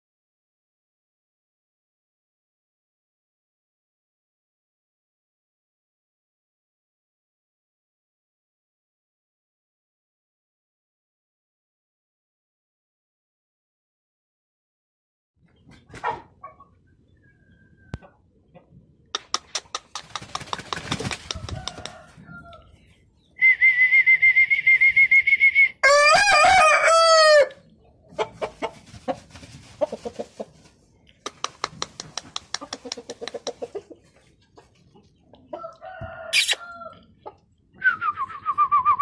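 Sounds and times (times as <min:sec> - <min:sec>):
chickens clucking: 0:15.4 - 0:23.3, 0:27.6 - 0:37.8
rooster crowing: 0:21.4 - 0:22.7, 0:25.8 - 0:27.6, 0:35.6 - 0:37.0
short falling chicken call: 0:35.9 - 0:36.9.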